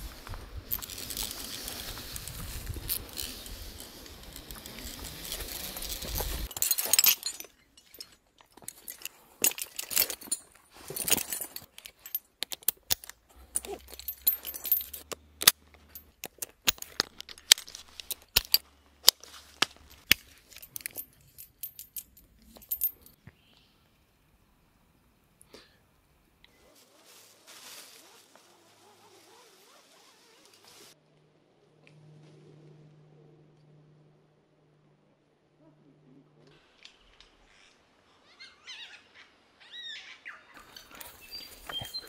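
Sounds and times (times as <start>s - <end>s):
carabiners clinking and clicking: 0.7s - 23.2s, 40.6s - 42.0s.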